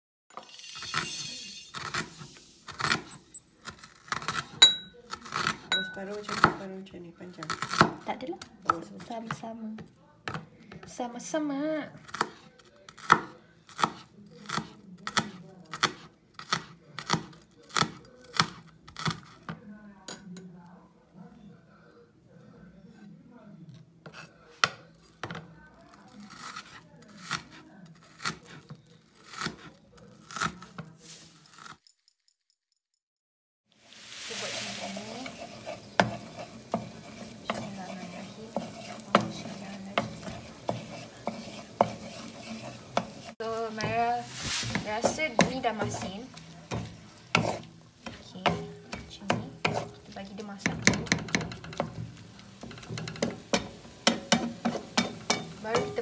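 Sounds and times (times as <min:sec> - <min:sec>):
egg sizzling in butter: 0:00.3 - 0:06.4, 0:33.7 - 0:56.0
knife chopping on wooden board: 0:12.0 - 0:19.3, 0:38.5 - 0:44.0, 0:44.6 - 0:52.0
wooden spatula scraping pan: 0:30.6 - 0:31.4, 0:33.8 - 0:56.0
spatula knocking against pan: 0:38.4 - 0:44.0, 0:44.7 - 0:50.0, 0:50.6 - 0:56.0.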